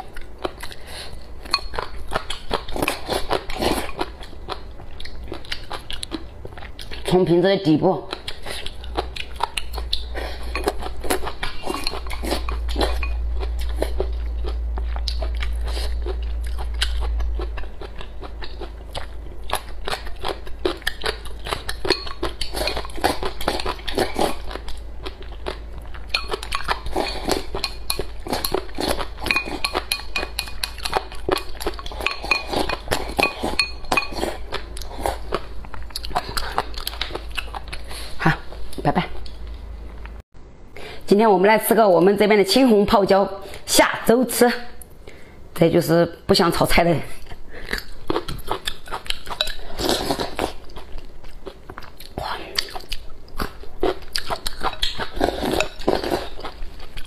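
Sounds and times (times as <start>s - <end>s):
chewing crisp vegetables: 0.0s - 39.6s, 47.0s - 57.0s
low hum: 8.7s - 40.8s
chopsticks clinking against bowl: 21.8s - 23.0s, 26.1s - 34.4s.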